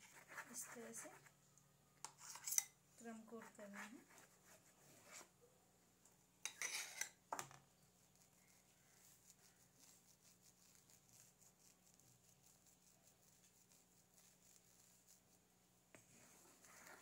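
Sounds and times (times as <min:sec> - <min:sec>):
palette knife scraping a dish: 0:00.0 - 0:01.3, 0:02.0 - 0:05.3, 0:06.4 - 0:07.2, 0:09.0 - 0:12.6
faint scratching of spreading cream: 0:00.0 - 0:05.5, 0:06.4 - 0:17.0.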